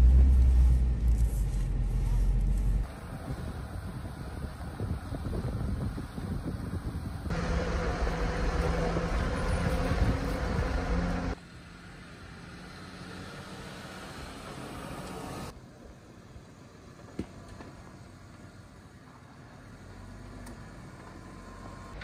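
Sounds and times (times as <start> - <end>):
car engine running: 0.0 - 11.4.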